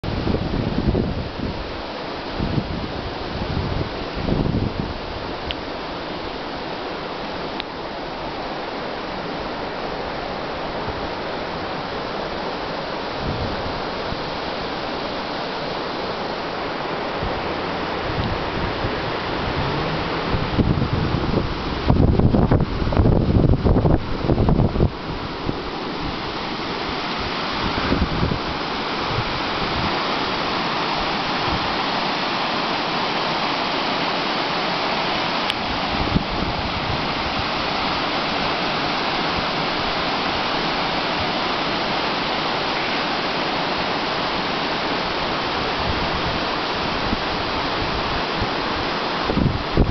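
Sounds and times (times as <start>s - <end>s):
wind bumps on microphone: 0.0s - 5.4s, 10.7s - 14.7s, 15.7s - 26.4s, 27.2s - 31.8s, 35.6s - 41.4s, 45.1s - 49.9s
river water rushing over a weir: 0.0s - 49.9s.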